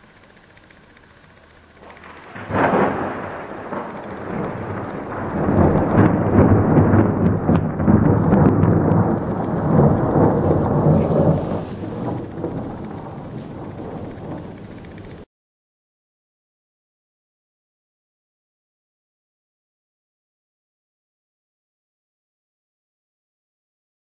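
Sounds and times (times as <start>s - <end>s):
thunder peal and rolling rumble: 1.0s - 15.3s.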